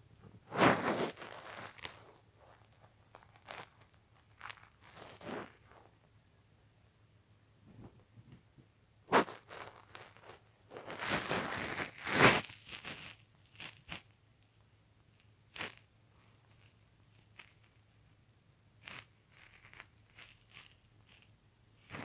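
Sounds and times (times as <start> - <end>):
rustling and crinkling: 0.0 - 6.2, 7.6 - 18.0, 18.8 - 22.0.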